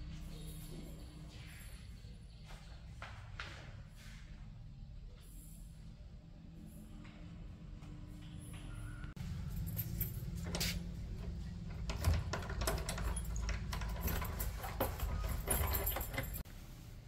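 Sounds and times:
keys jangling: 0:09.3 - 0:11.1, 0:11.8 - 0:16.5
lock rattling: 0:09.6 - 0:16.4.

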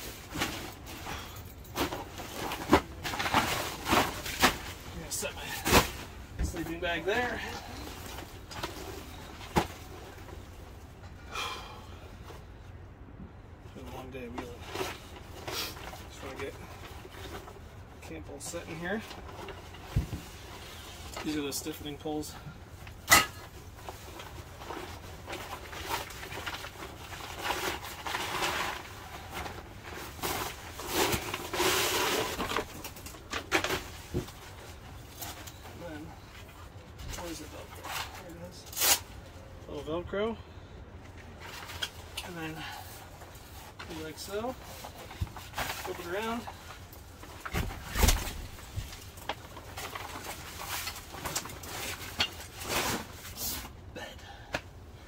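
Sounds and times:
camping gear rustling and knocking: 0:00.0 - 0:11.2, 0:13.2 - 0:38.6, 0:40.9 - 0:54.8.

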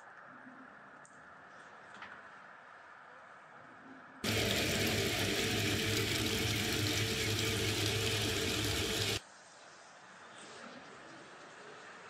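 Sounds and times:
industrial machinery noise: 0:04.2 - 0:09.2.

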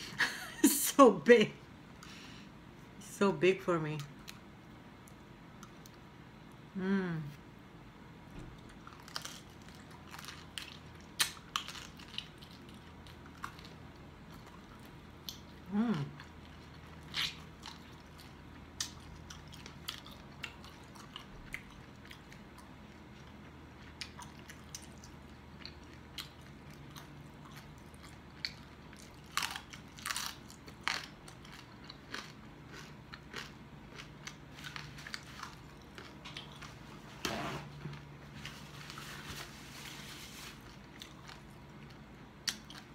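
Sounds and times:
crunchy chewing: 0:08.5 - 0:37.0, 0:37.9 - 0:42.9.

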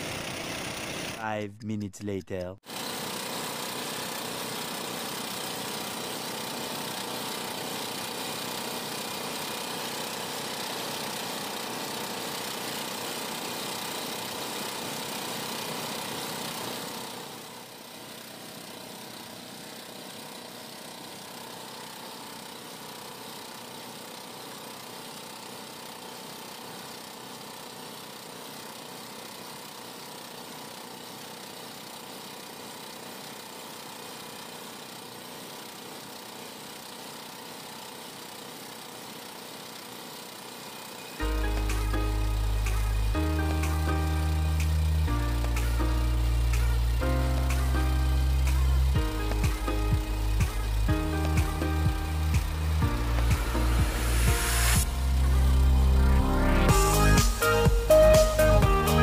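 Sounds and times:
boat motor running: 0:41.2 - 0:59.0.

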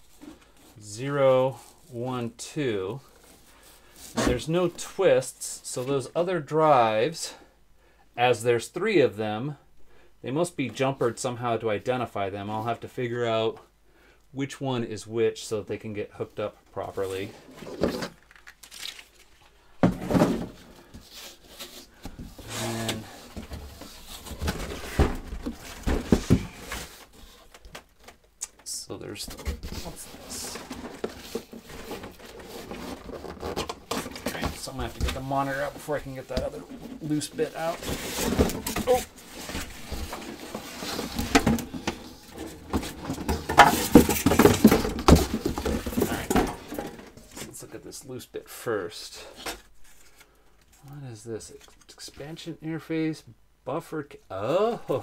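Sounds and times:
cardboard and foam rustling: 0:16.8 - 0:28.2, 0:29.0 - 0:47.6
cardboard thump: 0:19.8 - 0:20.6, 0:24.4 - 0:26.7.

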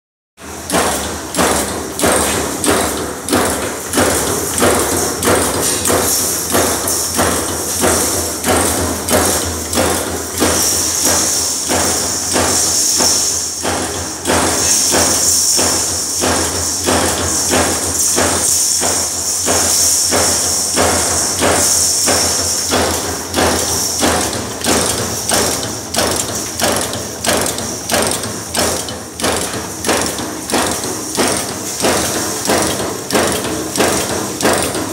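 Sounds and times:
machine striking rhythmically: 0:00.4 - 0:34.9.

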